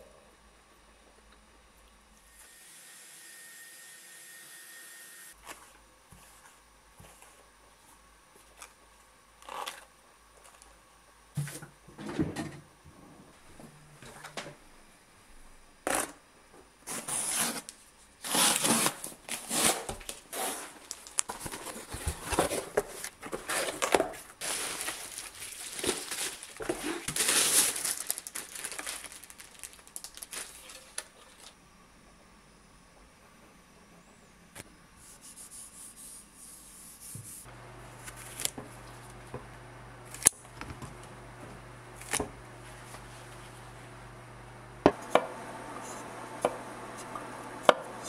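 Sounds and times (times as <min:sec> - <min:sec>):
cardboard packaging pulled open: 0:16.9 - 0:31.5
bubble wrap crinkling: 0:18.2 - 0:31.5.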